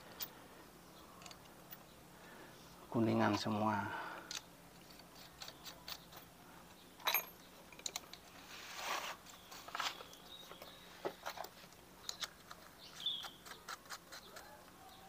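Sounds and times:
small metal clicks and clinks: 1.2s - 1.9s, 4.3s - 8.3s.

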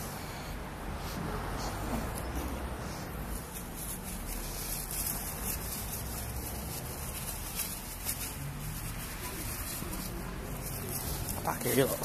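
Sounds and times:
faint rustling crackles: 1.8s - 12.0s.

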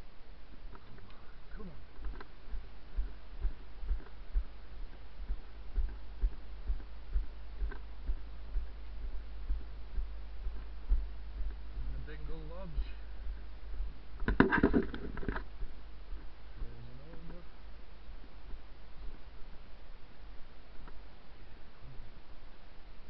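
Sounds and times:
steady low rumble: 0.0s - 23.0s
faint ticks: 0.5s - 12.0s, 12.8s - 17.5s, 20.7s - 22.1s
footsteps on grass: 1.6s - 17.3s.

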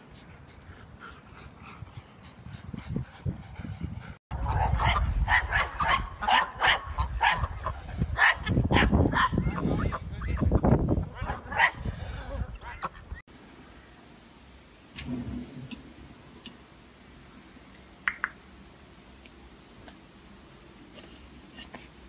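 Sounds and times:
dog barking: 4.5s - 7.5s, 8.2s - 9.4s.

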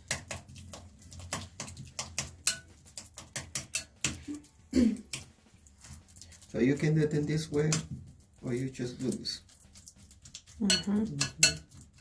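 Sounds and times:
utensil clicking against bowl: 1.1s - 4.3s, 9.8s - 12.0s.

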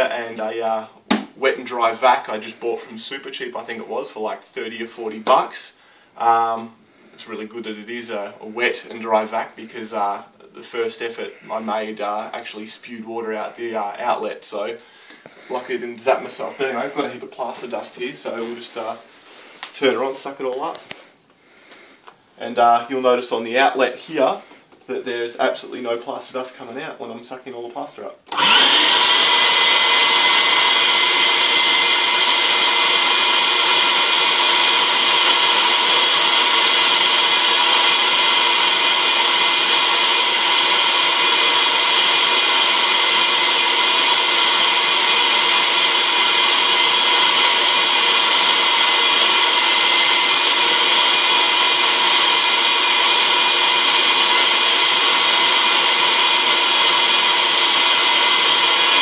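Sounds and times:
vacuum cleaner motor whining: 28.3s - 59.0s.

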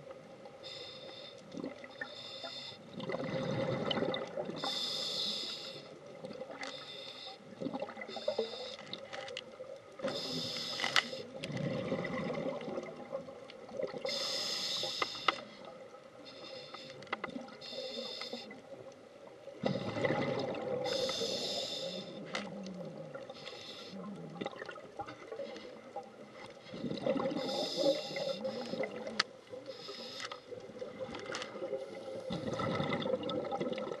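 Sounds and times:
regulator hissing breath in: 0.6s - 2.9s, 4.6s - 6.0s, 6.6s - 7.5s, 8.1s - 8.9s, 10.0s - 11.3s, 14.1s - 18.6s, 20.8s - 22.4s, 23.4s - 24.1s, 26.6s - 29.0s, 29.6s - 30.6s
bubbling breath out: 31.6s - 34.0s.

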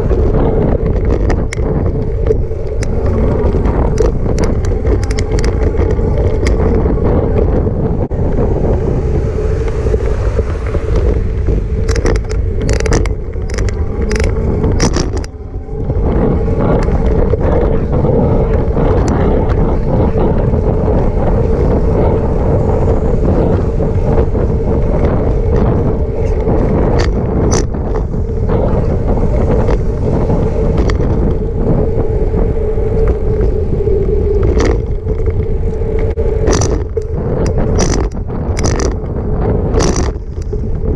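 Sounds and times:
bike clicks and rattles: 0.0s - 40.9s
tyre rumble: 0.0s - 40.9s
wind on microphone: 0.0s - 40.9s.

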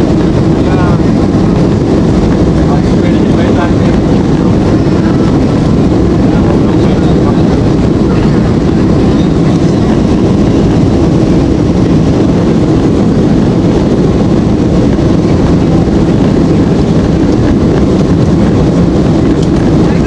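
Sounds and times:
airplane cabin engine rush: 0.0s - 20.0s.

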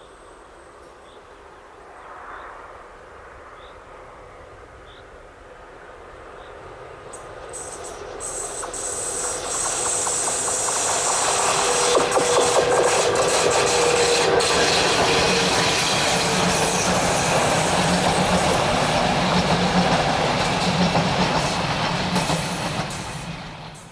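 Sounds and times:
train wheels rolling on track: 6.3s - 23.9s.

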